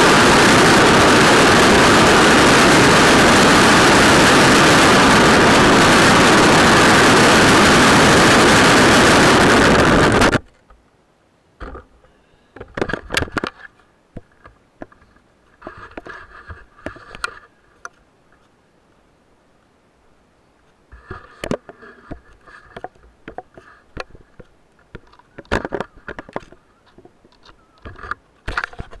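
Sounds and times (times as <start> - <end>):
longboard wheels rolling on asphalt: 0.0 - 10.5.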